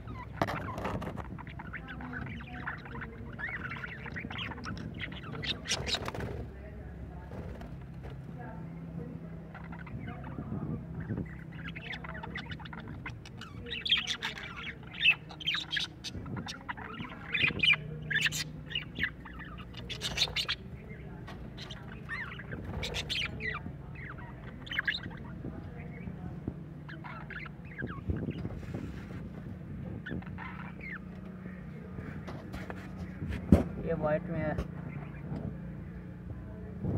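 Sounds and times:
budgerigars chattering: 0:00.0 - 0:06.6, 0:08.8 - 0:28.9, 0:29.5 - 0:32.3.

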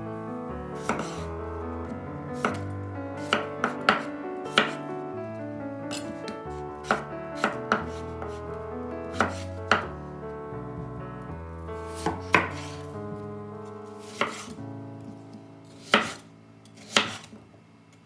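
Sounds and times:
soft background music: 0:00.0 - 0:17.3
knife chopping on wooden board: 0:00.8 - 0:01.2, 0:02.4 - 0:02.6, 0:03.2 - 0:04.8, 0:06.8 - 0:08.0, 0:09.1 - 0:09.9, 0:12.0 - 0:12.8, 0:14.1 - 0:14.5, 0:15.8 - 0:16.2, 0:16.8 - 0:17.3.

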